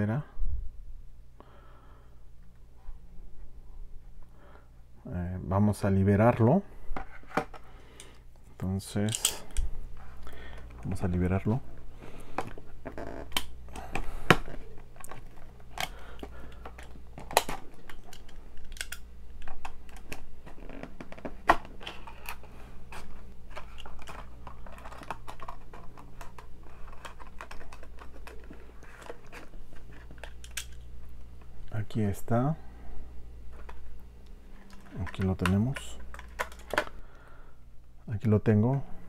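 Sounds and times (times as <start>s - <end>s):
plastic blister pack opening: 12.2s - 30.9s, 34.6s - 37.0s.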